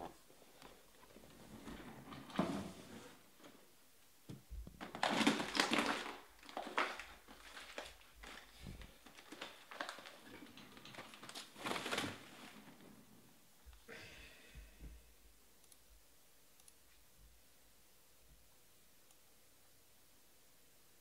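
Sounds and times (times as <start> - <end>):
foil wrappers crinkling: 4.8 - 12.8.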